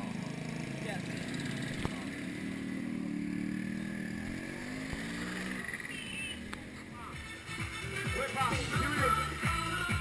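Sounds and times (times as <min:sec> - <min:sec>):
small motorcycle engine running: 0:00.0 - 0:07.1.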